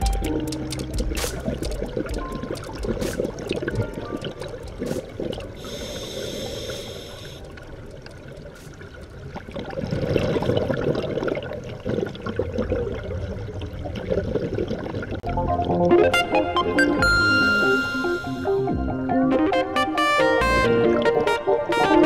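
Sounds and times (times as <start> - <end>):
exhaled bubbles underwater: 1.4 - 16.0
underwater regulator breathing: 4.8 - 7.6
thin high whistle: 17.1 - 18.6.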